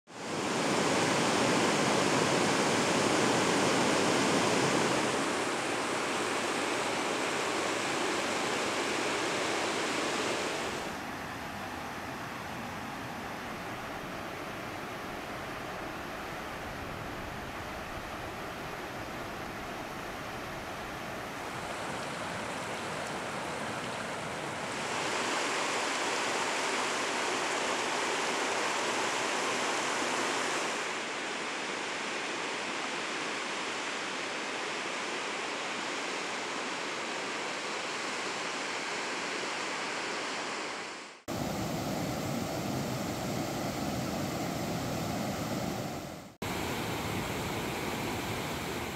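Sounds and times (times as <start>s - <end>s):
river rapids rushing: 0.2s - 48.9s.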